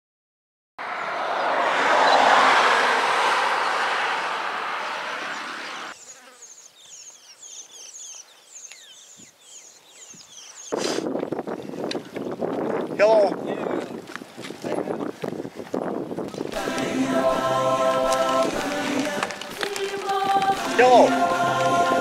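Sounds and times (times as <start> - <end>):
loud rushing noise: 0.8 - 6.0
high chirping calls: 5.4 - 10.8.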